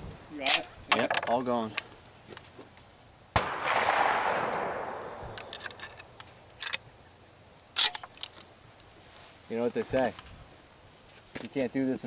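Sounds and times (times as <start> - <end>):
gunshot echoing: 3.4 - 6.2.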